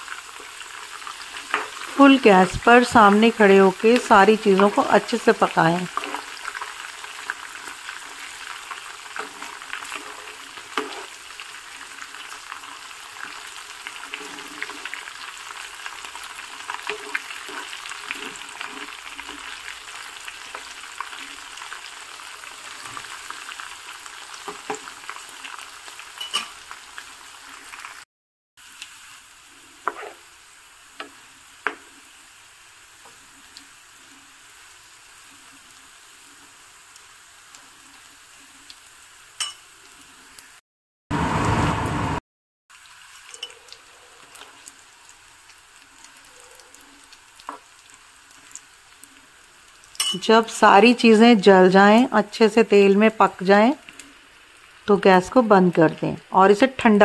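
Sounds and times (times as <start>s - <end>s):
spices sizzling in oil: 0.0s - 28.0s, 28.6s - 40.6s, 42.7s - 57.0s
spatula scraping a pan: 0.4s - 1.9s, 5.9s - 21.5s, 29.8s - 30.3s.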